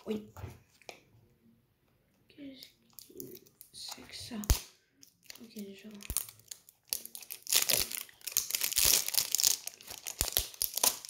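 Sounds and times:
plastic wrap crinkling and tearing: 2.8s - 11.0s.

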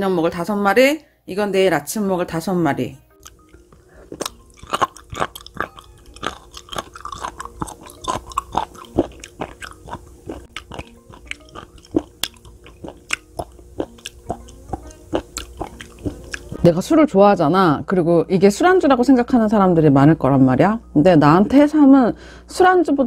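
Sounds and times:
soft background music: 0.0s - 23.0s
person chewing crunchily: 3.1s - 16.6s.

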